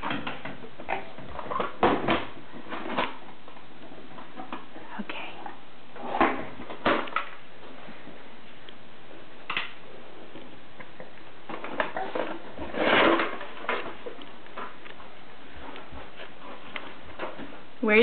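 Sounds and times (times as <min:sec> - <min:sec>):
lunchbox scraping and clattering: 0:11.6 - 0:14.2.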